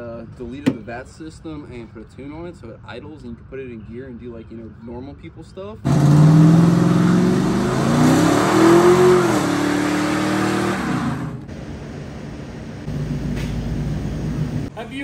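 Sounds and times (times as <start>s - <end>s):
truck engine revving: 5.8s - 14.7s.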